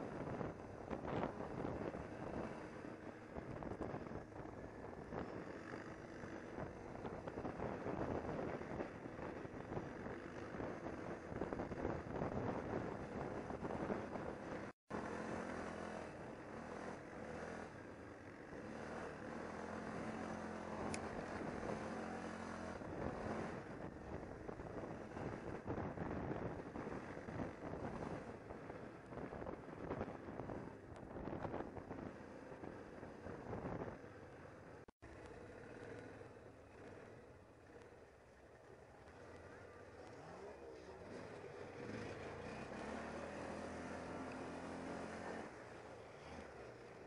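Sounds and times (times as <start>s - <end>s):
atv engine running: 0.0s - 47.0s
wind buffeting microphone: 3.3s - 14.4s, 22.8s - 34.0s.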